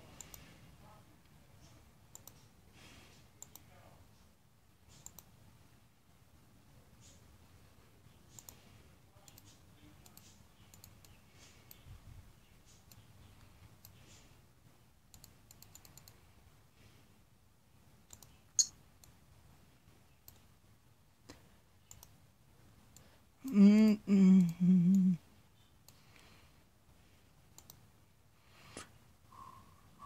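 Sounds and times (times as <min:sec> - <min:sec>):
computer mouse clicks: 0:00.2 - 0:00.5, 0:01.6 - 0:02.6, 0:03.4 - 0:03.7, 0:04.8 - 0:05.3, 0:08.3 - 0:11.9, 0:12.6 - 0:14.3, 0:15.1 - 0:16.4, 0:18.0 - 0:19.2, 0:20.2 - 0:20.5, 0:21.8 - 0:22.2, 0:27.5 - 0:27.9
person humming: 0:23.4 - 0:25.2.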